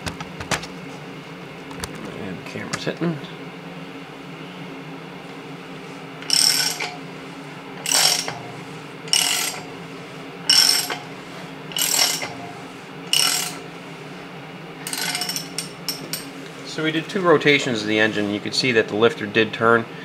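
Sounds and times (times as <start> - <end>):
ratchet wrench clicking: 6.2 - 7.0, 7.8 - 8.4, 9.1 - 9.7, 10.5 - 11.1, 11.7 - 12.4, 13.1 - 13.6, 14.8 - 16.3.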